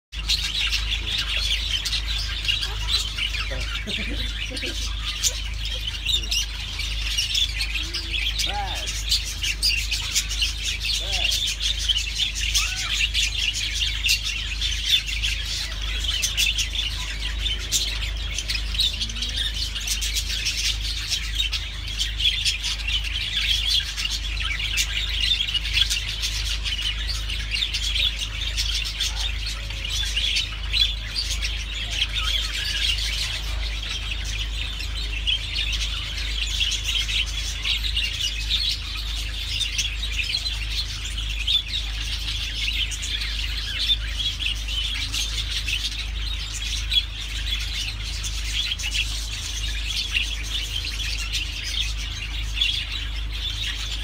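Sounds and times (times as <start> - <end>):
budgerigars chirping: 0.2 - 54.0.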